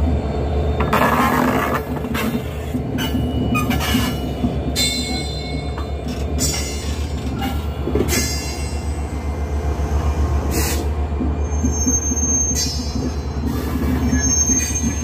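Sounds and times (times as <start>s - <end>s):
wheels clanking on rails: 0.8s - 9.0s.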